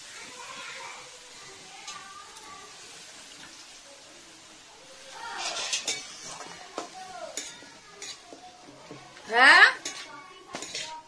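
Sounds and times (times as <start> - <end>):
metal spoon scraping a pan: 5.1 - 11.0
spoon clinking against pan: 5.4 - 8.3, 9.7 - 11.0.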